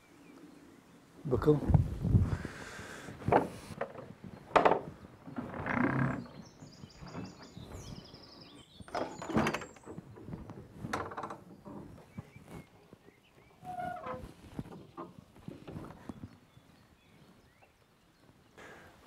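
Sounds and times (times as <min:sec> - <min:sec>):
wooden shutters knocking: 0:03.2 - 0:06.3
wooden door unlatched and opened: 0:03.3 - 0:06.3, 0:08.9 - 0:10.1
thin creak: 0:03.3 - 0:06.4, 0:13.6 - 0:16.1.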